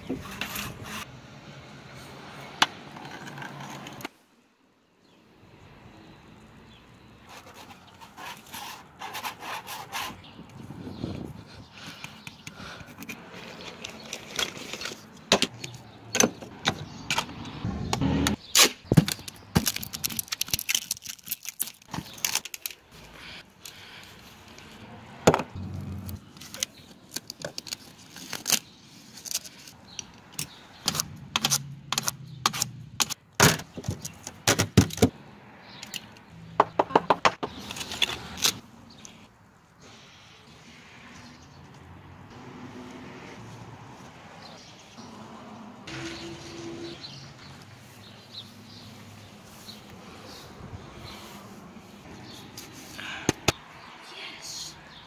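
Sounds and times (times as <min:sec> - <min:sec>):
scraping and rubbing: 0:00.0 - 0:01.1, 0:07.2 - 0:10.3.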